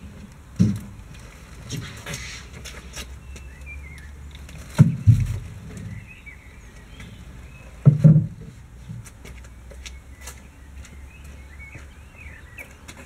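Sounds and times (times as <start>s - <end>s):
faint birds chirping: 1.1s - 13.0s
hollow wooden hull thumps: 4.7s - 6.0s, 7.8s - 9.0s.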